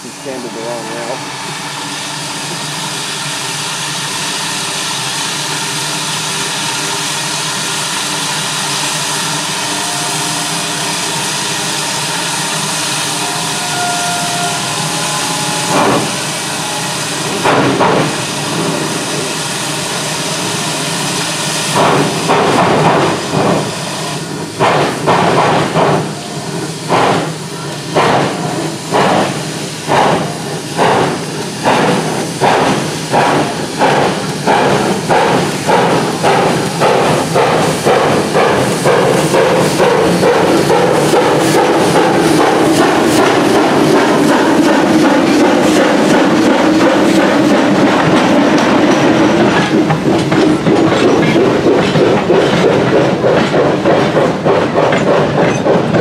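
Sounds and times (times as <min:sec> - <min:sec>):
steam hissing: 0:00.0 - 0:56.0
steam locomotive exhaust chuffs: 0:00.0 - 0:56.0
steam venting at cylinders: 0:14.6 - 0:50.6.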